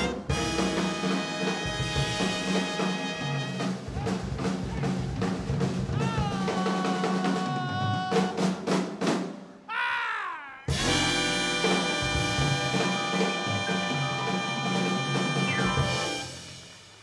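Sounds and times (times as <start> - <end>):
horn chords: 0.0 - 4.9, 10.7 - 16.8
drum kit snare and bass drum: 0.0 - 9.4, 10.7 - 17.0.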